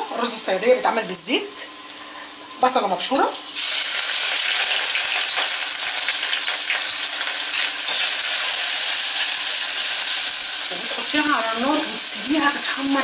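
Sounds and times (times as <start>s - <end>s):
onion sizzling in hot oil: 1.8s - 13.0s.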